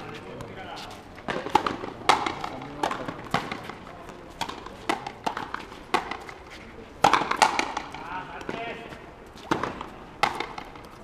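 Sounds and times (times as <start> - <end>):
rubber ball hitting rackets and walls: 1.2 - 8.8, 9.4 - 11.0.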